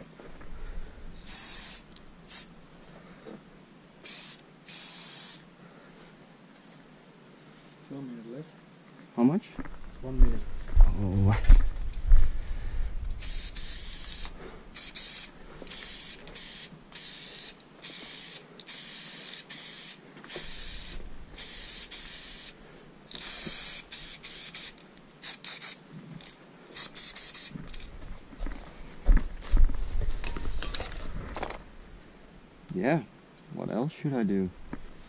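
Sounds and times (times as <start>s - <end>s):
spray paint can hissing: 1.2s - 2.5s, 4.0s - 5.4s, 13.2s - 25.8s, 26.7s - 27.6s.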